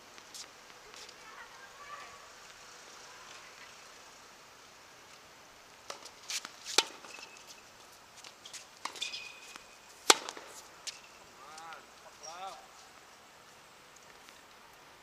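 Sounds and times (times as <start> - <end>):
tennis ball bouncing on hard court: 5.9 - 7.3, 8.5 - 11.0
tennis ball racket hits: 5.9 - 7.3, 8.5 - 11.0
shoe squeaks: 6.3 - 7.6, 8.4 - 9.8.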